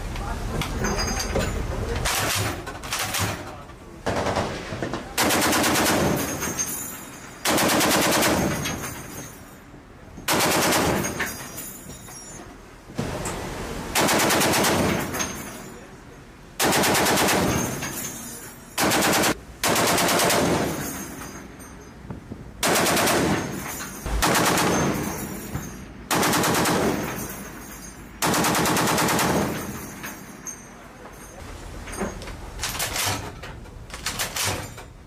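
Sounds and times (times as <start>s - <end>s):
heavy machine gun bursts: 2.0s - 6.8s, 7.4s - 9.2s, 10.3s - 11.5s, 13.0s - 15.6s, 16.6s - 18.2s, 18.8s - 21.2s, 22.6s - 25.5s, 26.1s - 27.5s, 28.2s - 30.2s.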